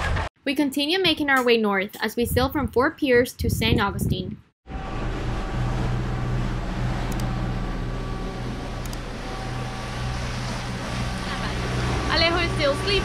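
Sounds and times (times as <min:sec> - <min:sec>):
boat engines humming: 0:04.7 - 0:13.0.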